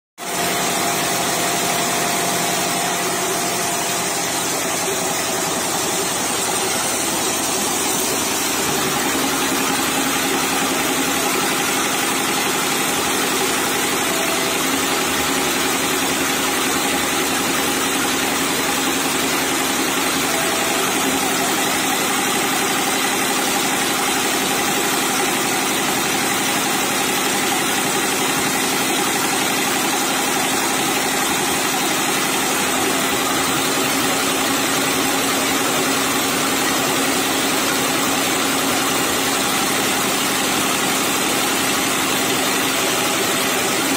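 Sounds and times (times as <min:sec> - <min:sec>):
quilting machine stitching: 0:00.2 - 0:43.9.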